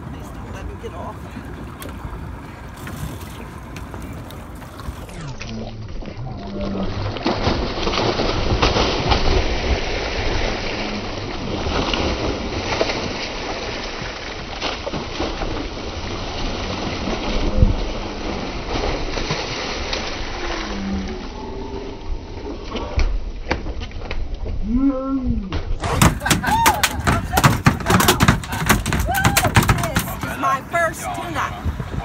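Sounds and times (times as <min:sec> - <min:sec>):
fish thrashing and splashing water: 0:01.7 - 0:21.4, 0:25.8 - 0:31.3.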